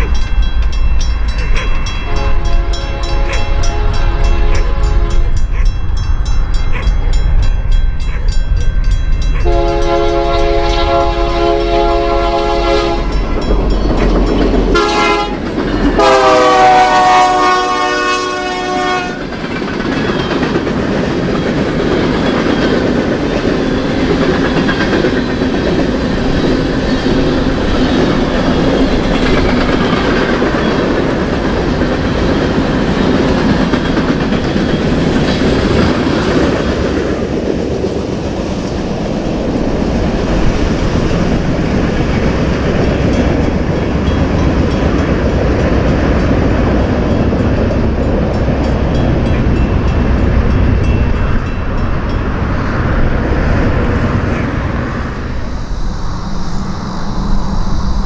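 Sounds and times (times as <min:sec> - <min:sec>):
wheels clacking over rail joints: 0:00.0 - 0:17.0, 0:18.6 - 0:55.0
freight train rumbling by: 0:00.0 - 0:58.0
locomotive air horn blasts: 0:02.0 - 0:05.4, 0:09.4 - 0:13.2, 0:14.7 - 0:19.2.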